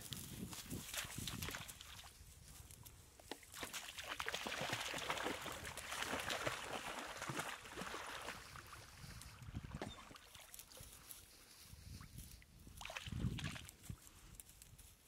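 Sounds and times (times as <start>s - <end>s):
dog splashing through water: 3.5s - 9.0s, 12.8s - 13.7s.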